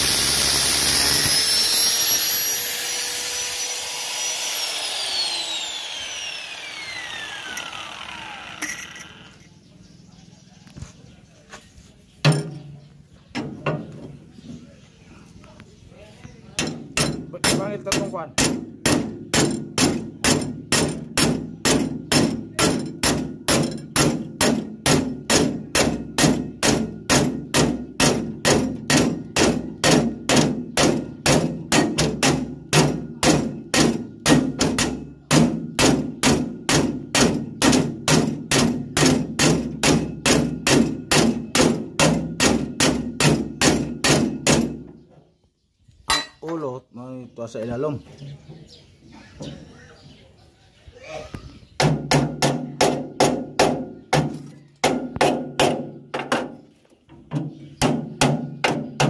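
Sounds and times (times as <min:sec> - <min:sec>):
hammer striking metal punch: 0:16.6 - 0:44.8.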